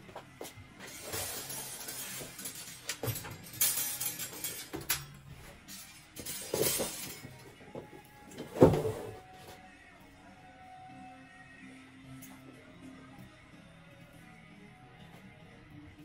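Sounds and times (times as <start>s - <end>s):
metal drying rack rattling: 0.8s - 7.4s.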